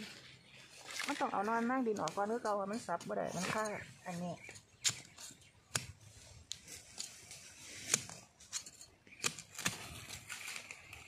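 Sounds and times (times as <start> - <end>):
leaf litter rustling: 0.0 - 4.2, 9.5 - 11.0
stick scraping and knocking soil: 0.8 - 11.0.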